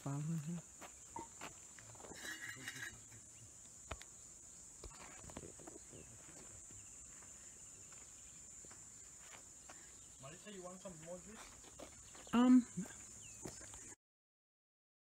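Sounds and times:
insect chirping call: 0:00.0 - 0:14.0
insects droning: 0:00.0 - 0:14.0.

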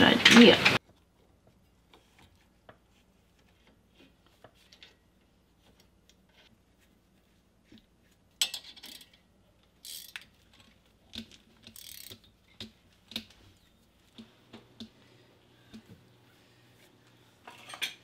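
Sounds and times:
ratchet wrench clicking: 0:09.8 - 0:10.6, 0:11.6 - 0:12.3.

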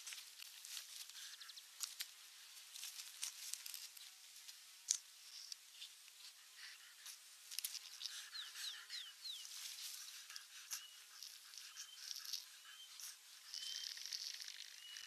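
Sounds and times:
faint crackle: 0:00.0 - 0:08.3, 0:09.4 - 0:15.0
clicks and rustles of nest sticks: 0:00.0 - 0:08.7, 0:09.4 - 0:15.0
bird chirping: 0:07.7 - 0:15.0.

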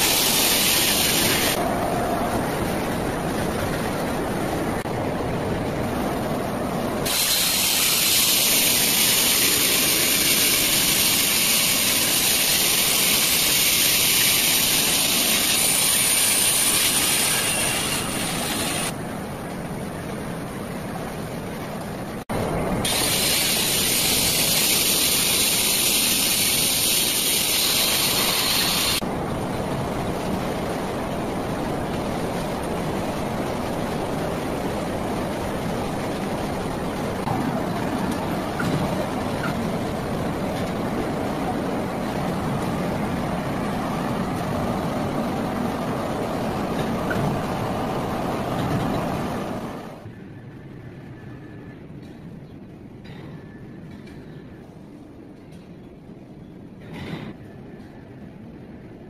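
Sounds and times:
saw cutting stone hiss: 0:00.0 - 0:01.6, 0:07.1 - 0:18.9, 0:22.9 - 0:29.0
steady machinery noise: 0:00.0 - 0:52.3.

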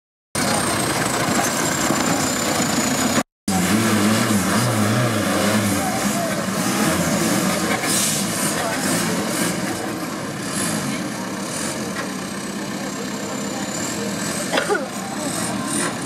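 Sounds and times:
engine revving under load: 0:03.5 - 0:12.2, 0:13.6 - 0:16.0.

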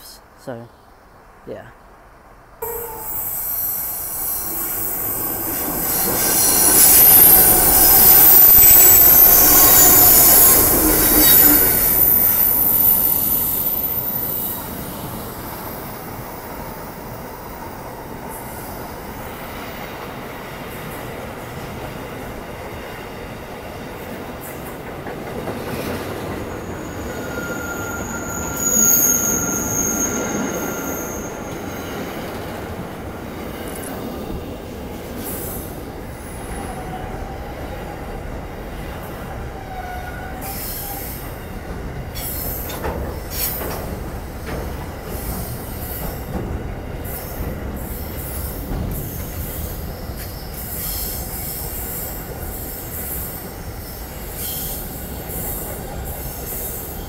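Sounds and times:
train wheel squeal: 0:02.6 - 0:16.4, 0:25.7 - 0:32.7, 0:39.5 - 0:41.4, 0:42.1 - 0:57.0
diesel locomotive passing: 0:02.6 - 0:57.0.

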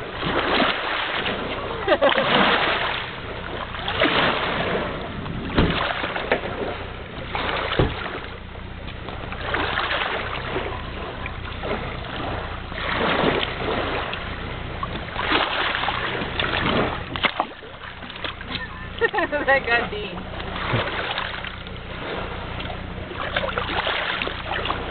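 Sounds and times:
sharp splashes: 0:00.0 - 0:24.9
water splashing and lapping: 0:00.0 - 0:24.9.

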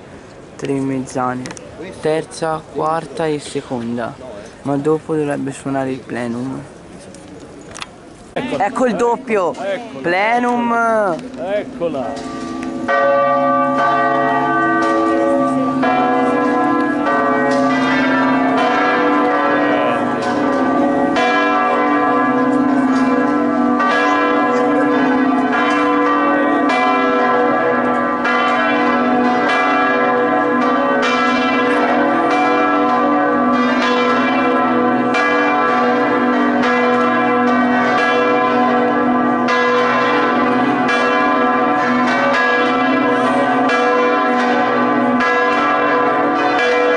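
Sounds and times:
church bells pealing: 0:08.6 - 0:46.9.

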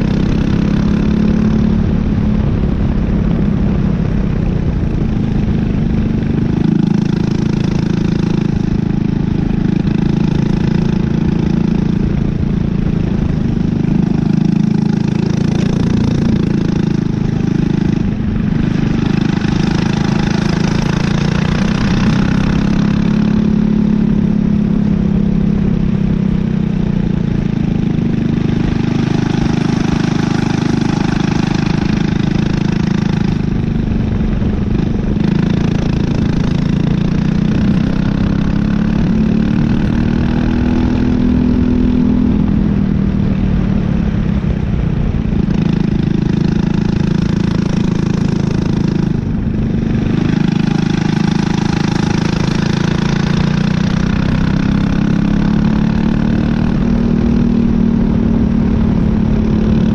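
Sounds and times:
kart engine running hard: 0:00.0 - 0:59.9.

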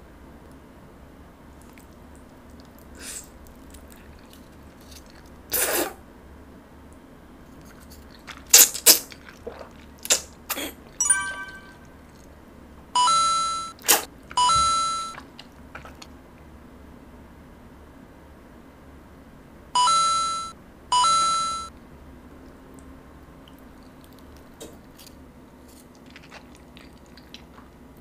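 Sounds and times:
noodles slurped: 0:01.6 - 0:06.0, 0:07.6 - 0:11.0, 0:15.2 - 0:16.1, 0:25.7 - 0:27.8
electronic beeping tones: 0:11.0 - 0:11.9, 0:14.4 - 0:15.2, 0:19.8 - 0:21.7.

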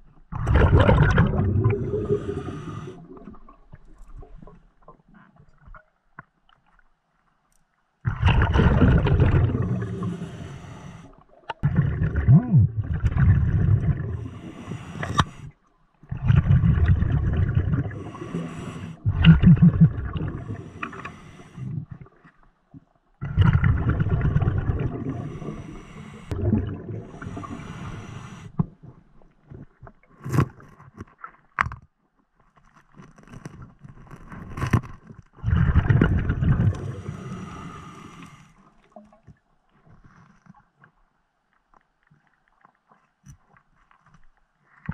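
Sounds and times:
scuba exhaust bubbles rumbling: 0:00.3 - 0:04.4, 0:08.1 - 0:15.5, 0:16.1 - 0:22.0, 0:23.2 - 0:28.5, 0:35.4 - 0:38.4.

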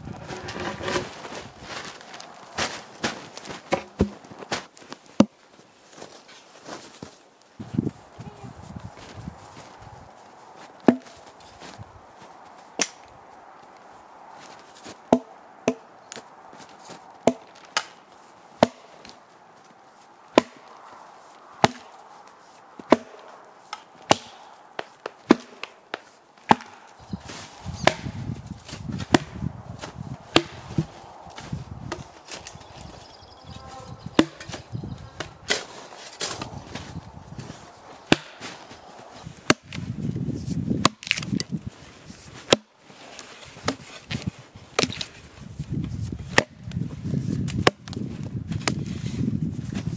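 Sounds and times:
hatchet chopping wood: 0:10.9 - 0:11.2, 0:15.1 - 0:15.9, 0:17.2 - 0:17.9, 0:18.6 - 0:18.9, 0:20.4 - 0:20.7, 0:21.6 - 0:21.9, 0:22.9 - 0:26.8, 0:27.8 - 0:28.2, 0:29.0 - 0:29.4, 0:30.3 - 0:30.9, 0:34.2 - 0:34.6, 0:38.1 - 0:38.6, 0:39.4 - 0:39.8, 0:40.8 - 0:41.5, 0:42.4 - 0:42.7, 0:44.8 - 0:45.1, 0:46.3 - 0:46.6.

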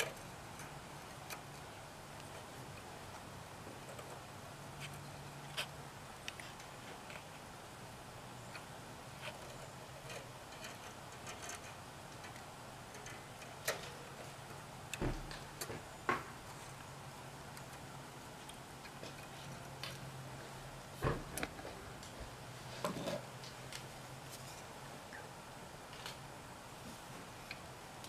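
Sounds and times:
small metal and plastic parts clicking: 0:00.0 - 0:03.2, 0:08.5 - 0:15.8
faint low hum: 0:00.0 - 0:28.0.

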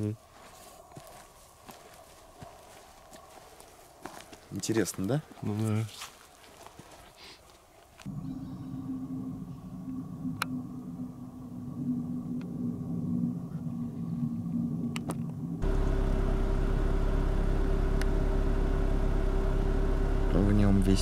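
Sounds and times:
quiet low hum: 0:08.0 - 0:21.0
vehicle engine and road rumble: 0:08.0 - 0:21.0.

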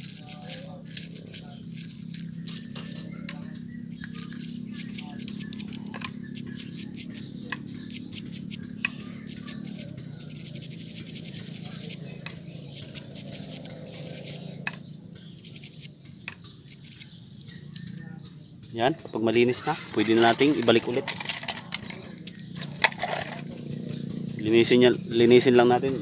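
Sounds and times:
scrubbing strokes on metal strainer: 0:09.3 - 0:12.0.

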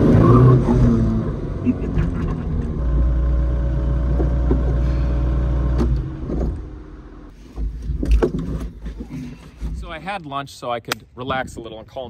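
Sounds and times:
car engine droning: 0:00.0 - 0:07.3.

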